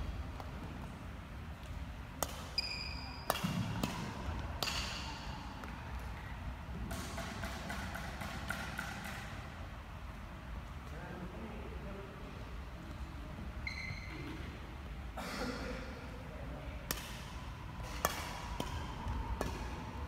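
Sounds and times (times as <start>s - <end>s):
sneaker squeaks on wooden floor: 2.6s - 3.3s, 13.6s - 14.4s.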